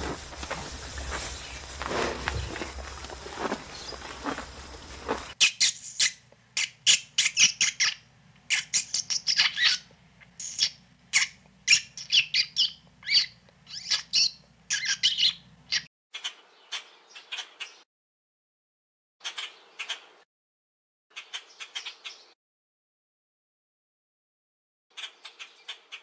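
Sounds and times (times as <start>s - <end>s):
high squeaky animal chirps: 5.4s - 17.5s.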